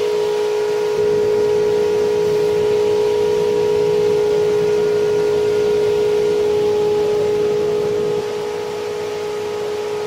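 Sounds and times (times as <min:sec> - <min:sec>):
furnace droning hum: 0:00.0 - 0:10.0.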